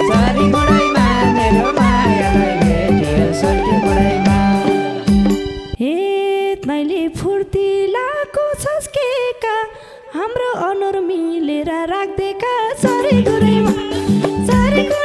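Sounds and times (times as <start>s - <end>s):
woman singing folk melody: 0.0s - 4.6s, 5.8s - 15.0s
instruments playing: 0.0s - 5.8s.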